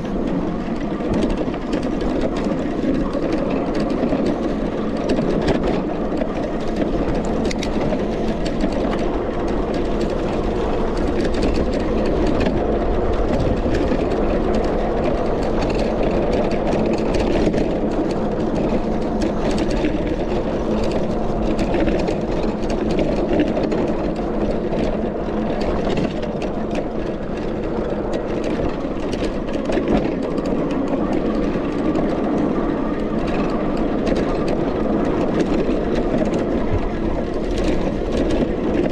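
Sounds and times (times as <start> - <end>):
bike rattles and clicks: 0.0 - 38.9
wind and tyre rumble: 0.0 - 38.9.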